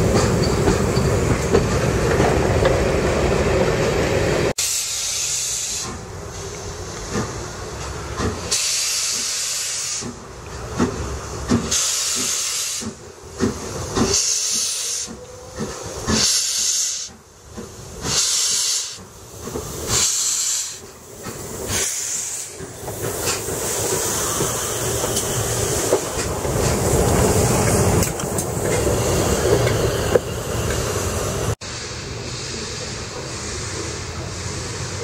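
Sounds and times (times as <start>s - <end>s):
steam locomotive hissing puffs: 4.5s - 35.0s.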